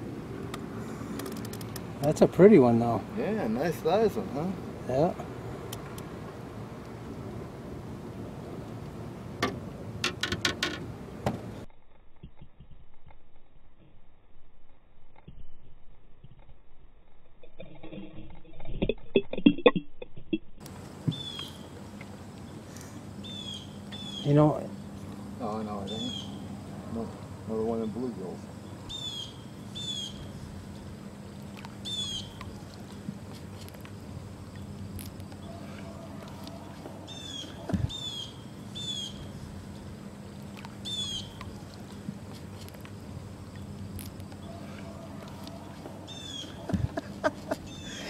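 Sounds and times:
bird calling: 20.9s - 39.6s, 40.2s - 42.1s, 43.5s - 48.0s
dull low thump: 37.7s - 38.0s.

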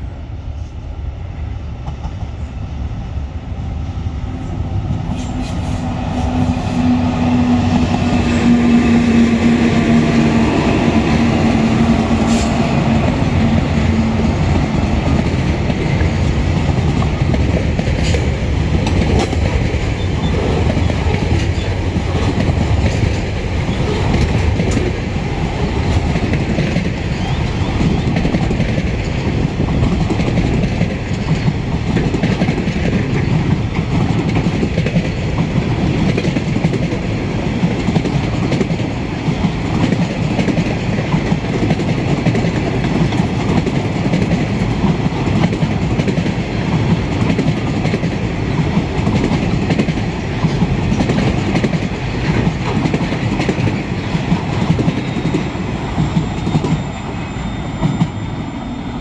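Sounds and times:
freight train wagons rolling past: 4.3s - 59.0s
wheels clattering on rails: 25.8s - 56.9s.

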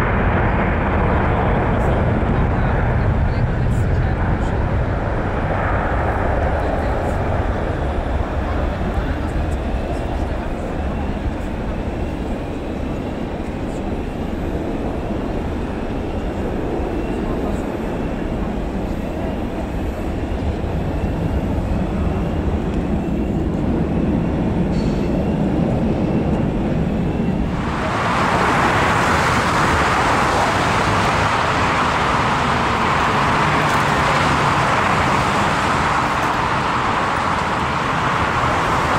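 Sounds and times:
jet engines rumbling: 0.0s - 38.9s
steady rushing ground noise: 27.0s - 38.9s.

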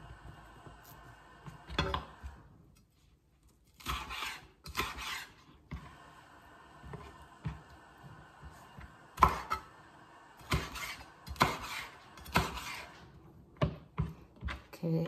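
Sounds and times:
knife slicing pepper: 3.8s - 5.4s, 10.4s - 12.9s.

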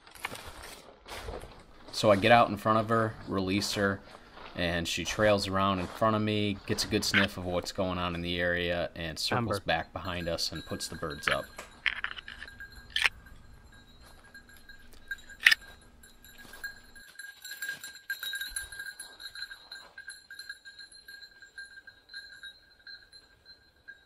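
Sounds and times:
dog collar bell ringing: 9.3s - 24.0s.

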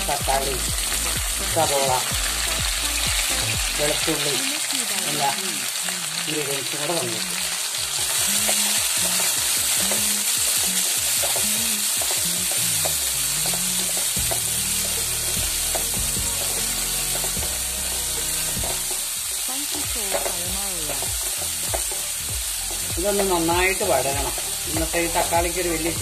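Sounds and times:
vegetables sizzling in oil: 0.0s - 26.0s
spatula stirring: 8.0s - 26.0s.

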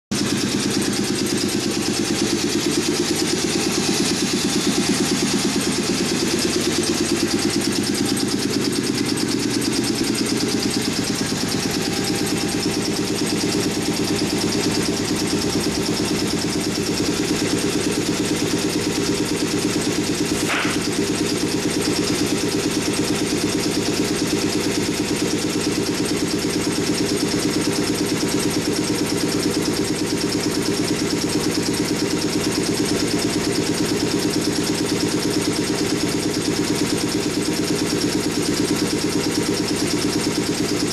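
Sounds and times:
cnc router mechanical drone: 0.2s - 27.7s.

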